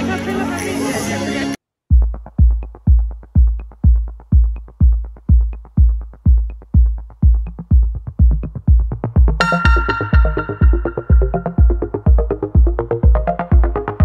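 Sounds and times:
electronic dance music: 0.0 - 14.0
heavy kick drum: 1.9 - 14.0
sustained synth chord: 9.4 - 13.0.

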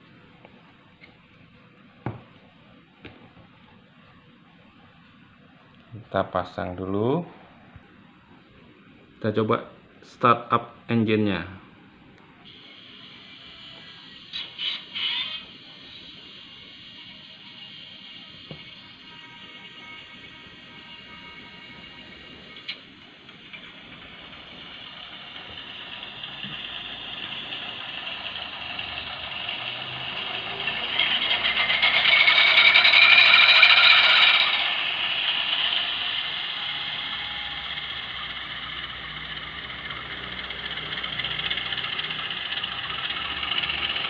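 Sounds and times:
diesel engine start-up on small speaker: 18.8 - 44.0.

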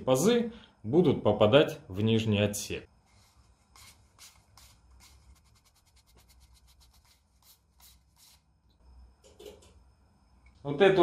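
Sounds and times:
faint rubbing of handled parts: 3.0 - 8.5.

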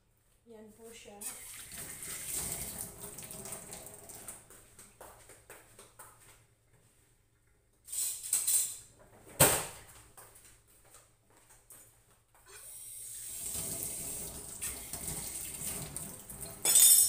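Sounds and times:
footsteps: 4.2 - 7.1, 9.8 - 12.6.

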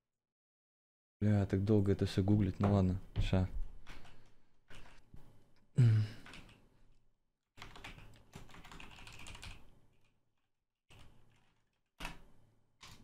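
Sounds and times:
typing on a keyboard: 3.8 - 5.0, 6.2 - 6.6, 7.6 - 10.2, 10.9 - 12.2.

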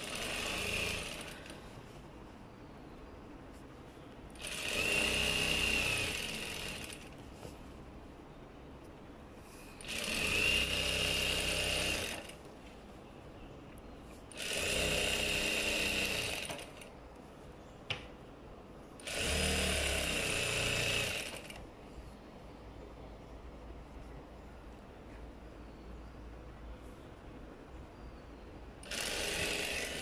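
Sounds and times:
sewing machine stitching: 0.0 - 1.5, 4.4 - 7.2, 9.8 - 12.4, 14.3 - 16.9, 19.0 - 21.6, 28.8 - 30.0.

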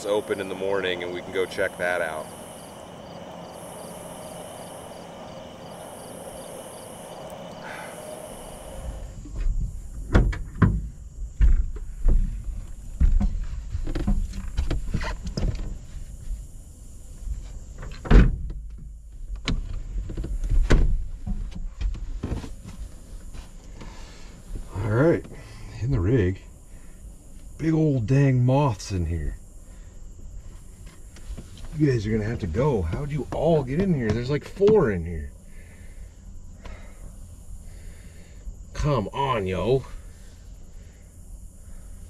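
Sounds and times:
night insects chirping: 0.0 - 42.0
knocks and thumps in truck bed: 9.4 - 12.4.

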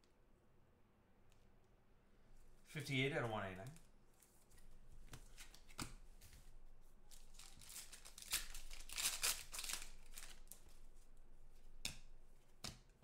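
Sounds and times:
foil wrapper tearing and crinkling: 7.3 - 10.6.

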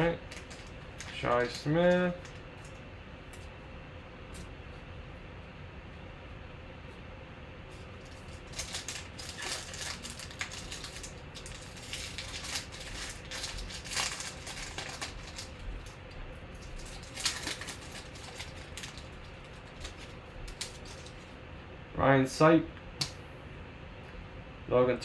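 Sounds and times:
foil wrapper tearing and crinkling: 0.0 - 2.8, 8.0 - 16.0, 16.6 - 21.3.

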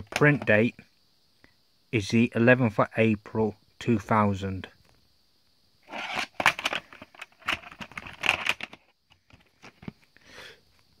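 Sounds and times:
plastic cassette case clicks: 6.1 - 9.9.

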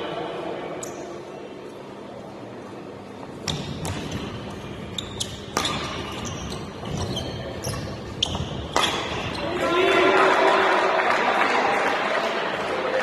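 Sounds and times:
shoes squeaking on court floor: 3.2 - 9.6
racket striking shuttlecock: 3.4 - 4.5, 5.2 - 6.3, 8.2 - 9.3.

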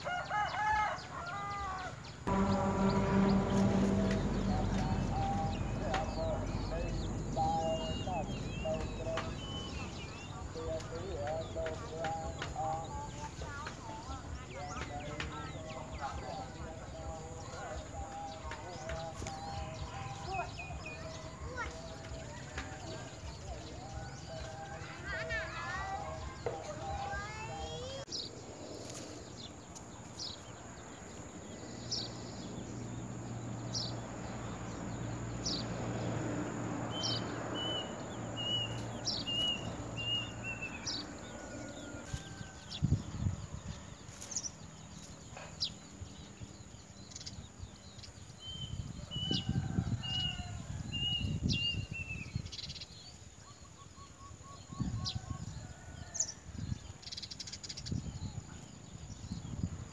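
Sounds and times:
songbird chipping calls: 1.4 - 35.7
low rumbles: 2.2 - 24.5.

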